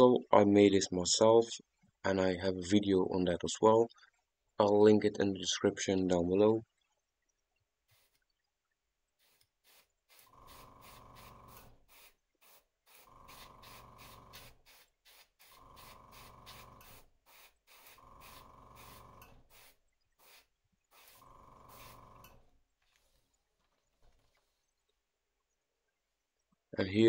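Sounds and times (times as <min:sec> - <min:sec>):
airbrush spraying hiss: 0:07.9 - 0:08.2, 0:09.2 - 0:22.4.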